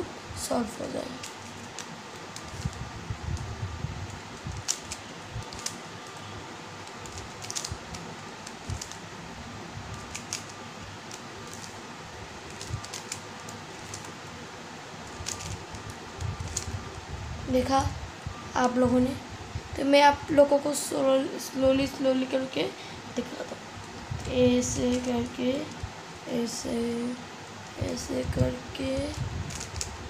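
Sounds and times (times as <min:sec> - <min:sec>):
background hiss: 0:00.0 - 0:30.0
puzzle cube clicking: 0:01.1 - 0:02.8, 0:04.1 - 0:09.1, 0:09.9 - 0:11.8, 0:12.5 - 0:14.2, 0:15.0 - 0:16.8, 0:29.5 - 0:29.9.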